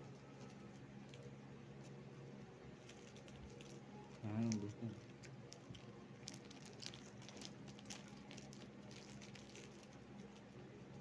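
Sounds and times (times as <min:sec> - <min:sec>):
steady low hum: 0:00.0 - 0:11.0
plastic wrapper crinkling: 0:02.8 - 0:10.5.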